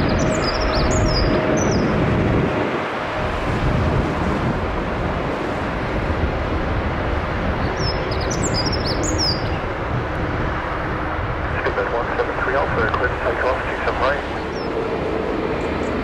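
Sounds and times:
jet engine rumble: 0.0 - 16.0
small birds chirping: 7.6 - 9.7.

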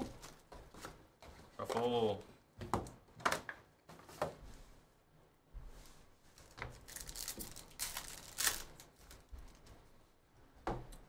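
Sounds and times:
pack wrapper rustling: 6.4 - 9.6.

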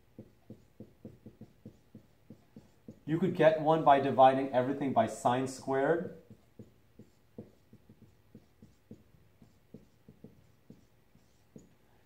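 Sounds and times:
marker writing on whiteboard: 0.0 - 3.2, 6.1 - 12.0.

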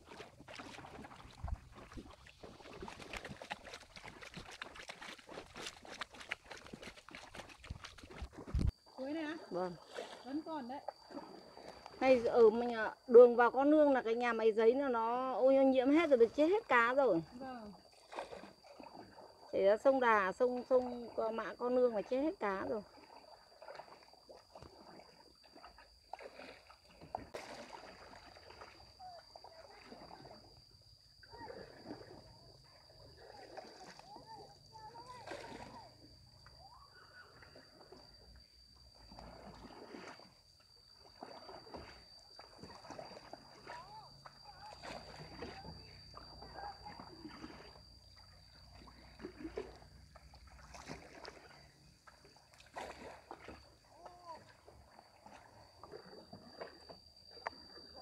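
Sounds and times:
water splashing from paddling: 0.0 - 13.0, 15.9 - 58.0
thin high-pitched whine: 27.9 - 50.7, 53.2 - 58.0.

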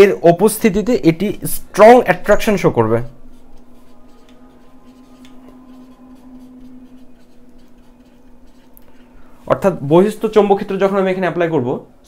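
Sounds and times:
steady low hum: 0.1 - 12.0
marker pen writing on whiteboard: 0.4 - 9.3.

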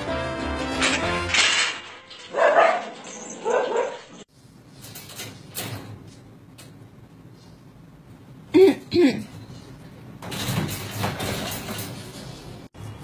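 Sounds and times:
background music: 0.0 - 2.3
wire cage door rattling: 0.8 - 6.7, 10.2 - 12.4
dog barking: 2.3 - 4.2.

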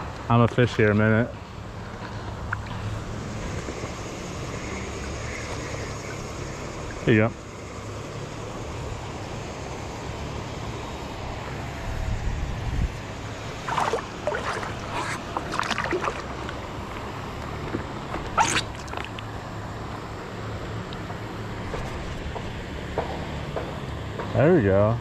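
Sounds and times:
moving river water: 1.5 - 12.1, 12.9 - 22.4
feet splashing in river water: 13.3 - 17.1, 18.3 - 19.2.

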